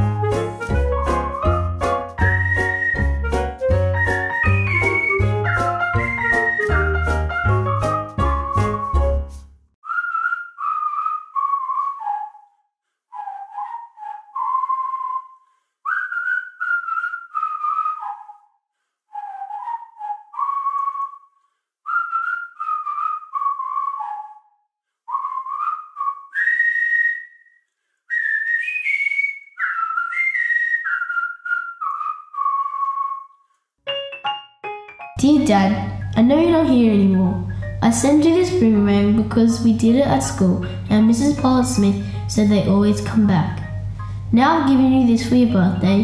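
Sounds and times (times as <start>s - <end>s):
person whistling melody: 0.0s - 21.3s, 21.9s - 33.4s.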